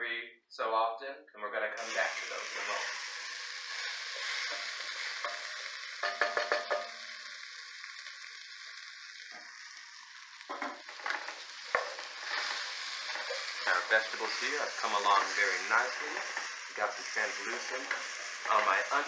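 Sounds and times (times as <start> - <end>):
vegetables sizzling in oil: 1.8 - 19.0
wooden spoon knocking against pot: 6.0 - 6.9.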